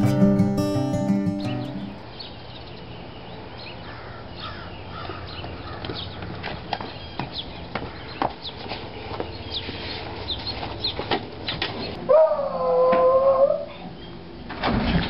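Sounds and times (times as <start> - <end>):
steady pitched tone: 0.0 - 2.0
birds chirping: 0.0 - 6.2.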